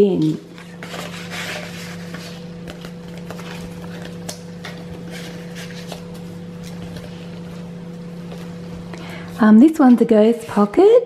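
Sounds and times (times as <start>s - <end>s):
steady low hum: 0.0s - 11.0s
paper and card rustling: 0.2s - 7.6s.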